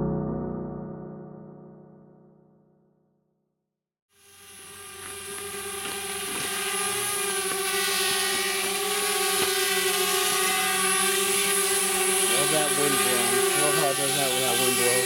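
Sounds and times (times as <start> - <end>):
drone propellers whining: 4.3 - 15.0.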